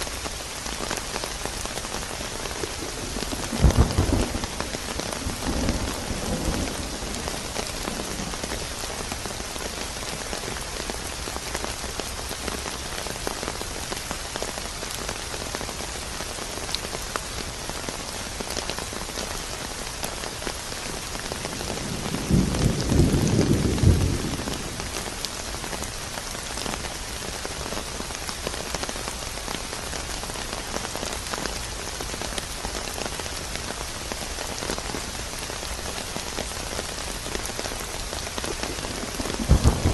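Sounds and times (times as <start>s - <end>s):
steady rain falling: 0.0s - 39.9s
thunder rumble: 2.7s - 8.5s, 21.4s - 25.2s, 38.4s - 39.9s.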